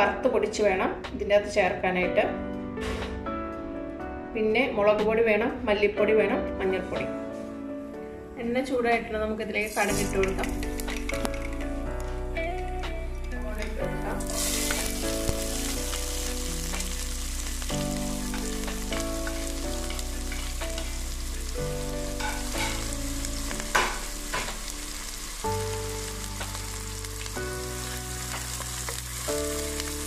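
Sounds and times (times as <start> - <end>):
onions sizzling in oil: 13.1 - 30.0.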